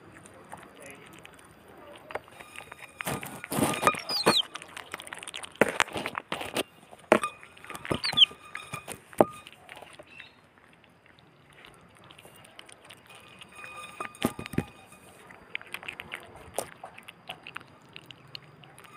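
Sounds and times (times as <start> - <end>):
wet chewing: 0.0 - 18.9
teeth and plate clinking: 0.5 - 18.9
otter pup squeaking: 2.4 - 5.4, 7.7 - 8.7.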